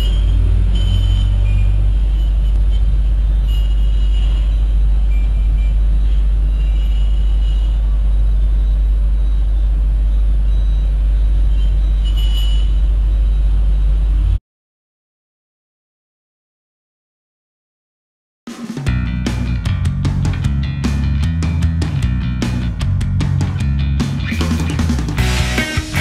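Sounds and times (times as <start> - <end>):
busy street traffic rumble: 0.0 - 14.4, 18.9 - 26.0
deep hum: 18.9 - 26.0.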